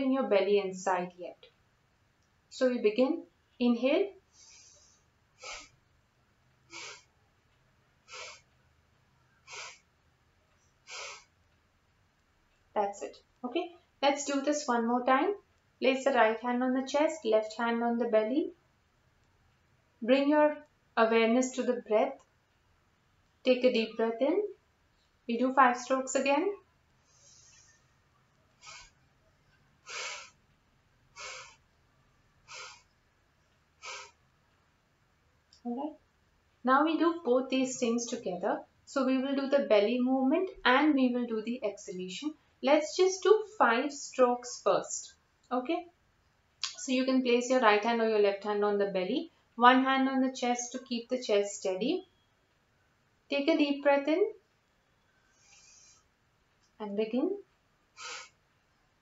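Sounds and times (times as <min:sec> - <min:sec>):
sharp exhalations through nose: 0:04.3 - 0:05.8, 0:06.7 - 0:07.1, 0:08.1 - 0:08.5, 0:09.4 - 0:09.9, 0:10.8 - 0:11.3, 0:27.0 - 0:27.9, 0:28.6 - 0:29.0, 0:29.8 - 0:30.4, 0:31.1 - 0:31.6, 0:32.4 - 0:33.0, 0:33.8 - 0:34.2, 0:55.2 - 0:56.1, 0:58.0 - 0:58.4.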